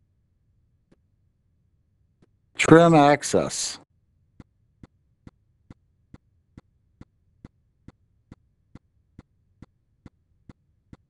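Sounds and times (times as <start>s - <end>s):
faint evenly spaced ticks: 4.3s - 11.0s.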